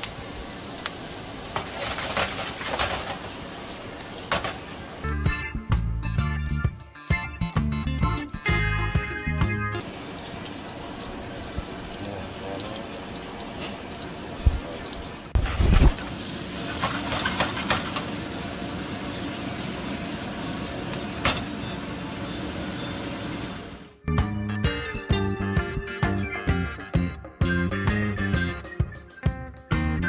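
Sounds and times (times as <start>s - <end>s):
onions sizzling in hot oil: 0.0s - 5.0s, 9.8s - 24.0s
guitar music: 5.0s - 9.8s.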